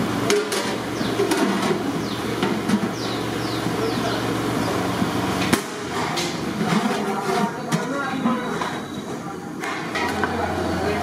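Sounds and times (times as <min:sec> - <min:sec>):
birds chirping: 0:00.9 - 0:01.3, 0:01.9 - 0:05.3.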